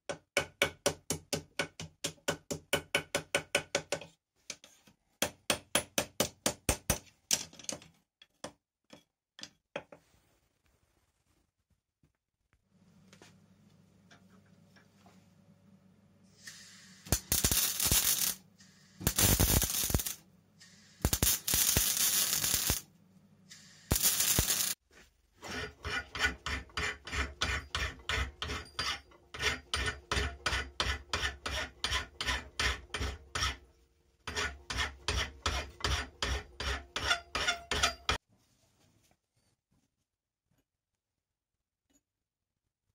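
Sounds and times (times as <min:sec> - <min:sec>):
welder crackling hiss: 0:16.4 - 0:22.9, 0:23.5 - 0:24.8
hand filing steel rod: 0:25.4 - 0:33.6, 0:34.3 - 0:38.2.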